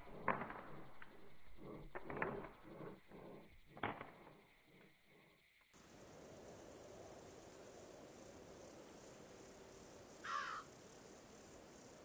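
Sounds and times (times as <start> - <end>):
high-pitched insect drone: 1.1 - 12.0
short animal call: 10.2 - 10.6.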